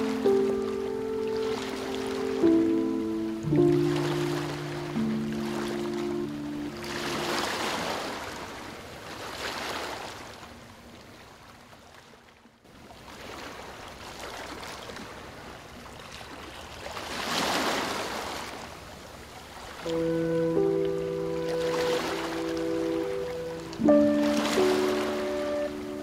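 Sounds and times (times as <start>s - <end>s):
ocean waves washing in: 0.0s - 10.8s, 12.9s - 26.0s.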